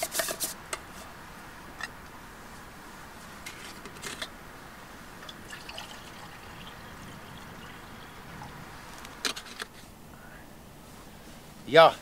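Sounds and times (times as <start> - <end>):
water pouring into metal cup: 5.2 - 8.9.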